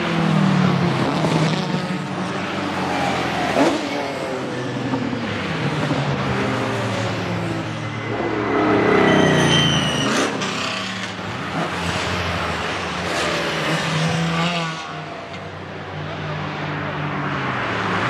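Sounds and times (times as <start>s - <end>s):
racing car engines passing: 0.0s - 18.0s.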